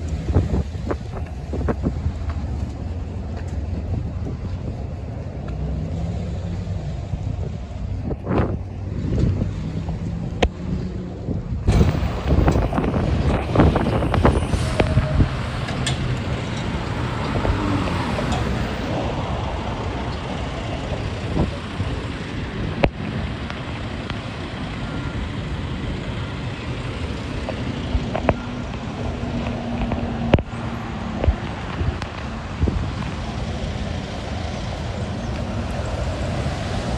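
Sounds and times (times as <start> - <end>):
wind on microphone: 0.0 - 24.6, 27.0 - 36.9
heavy truck passing: 0.0 - 36.9
passing cars: 0.0 - 36.9.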